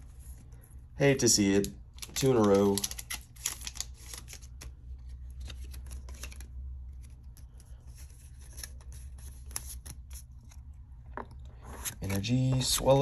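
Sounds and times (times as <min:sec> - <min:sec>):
foil wrapper and cards crinkling: 0:02.0 - 0:07.1.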